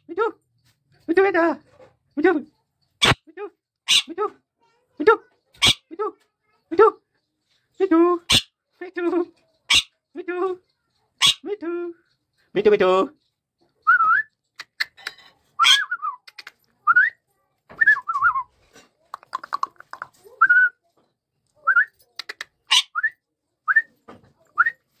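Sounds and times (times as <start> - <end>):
parakeet squawks: 3.9 - 4.1, 5.6 - 5.9, 8.3 - 8.5, 9.7 - 10.0, 11.2 - 11.5, 22.7 - 23.0.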